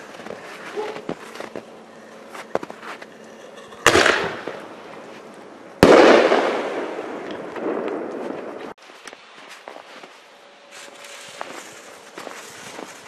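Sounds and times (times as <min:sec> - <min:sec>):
firework shell bursting: 0:03.8 - 0:04.7
firework lift charge bang: 0:03.9 - 0:04.6.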